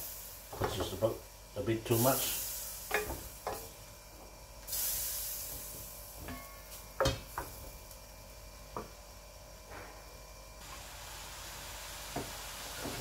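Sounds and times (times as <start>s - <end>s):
food sizzling in a wok: 0.0s - 0.7s, 1.9s - 7.8s, 10.6s - 13.0s
burst of hissing: 1.9s - 3.0s, 4.7s - 6.0s, 10.6s - 13.0s.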